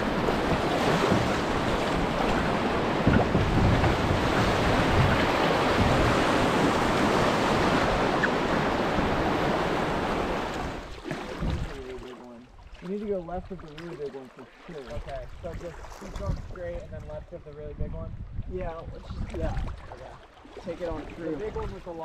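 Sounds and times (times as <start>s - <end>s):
wind buffeting microphone: 0.0s - 11.9s, 14.9s - 20.2s.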